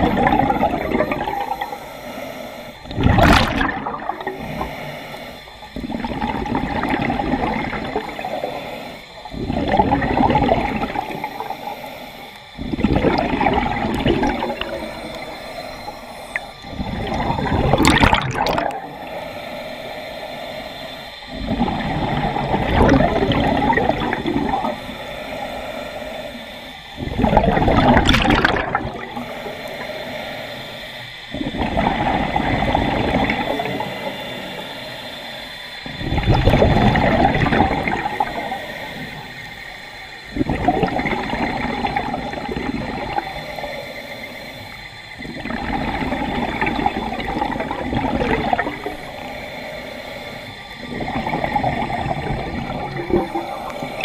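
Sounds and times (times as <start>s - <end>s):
diver exhaling bubbles: 0.0s - 1.8s, 2.8s - 5.0s, 5.7s - 11.8s, 12.4s - 19.2s, 21.3s - 24.8s, 26.9s - 29.8s, 31.3s - 34.8s, 35.8s - 39.3s, 40.3s - 43.7s, 45.2s - 49.4s, 50.8s - 54.0s.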